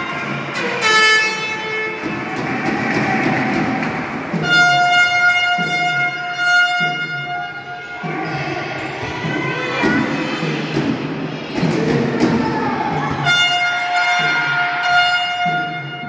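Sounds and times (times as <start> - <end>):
crowd chanting: 0.0 - 4.5
horn blowing long note: 4.3 - 7.7.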